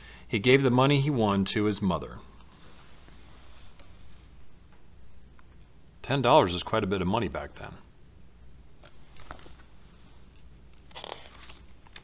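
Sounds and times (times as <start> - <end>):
book pages rustling: 8.8 - 12.0.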